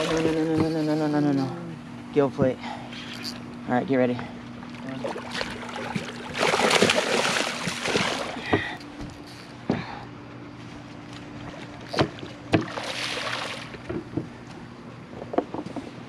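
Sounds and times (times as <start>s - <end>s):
steady low hum: 0.0s - 16.0s
fish splashing at water surface: 4.7s - 8.8s, 11.8s - 13.9s.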